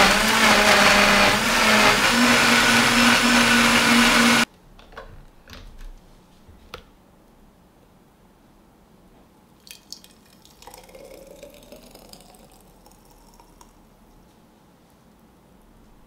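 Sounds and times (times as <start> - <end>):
smoothie pouring into glass jar: 0.0 - 4.5, 9.7 - 13.8.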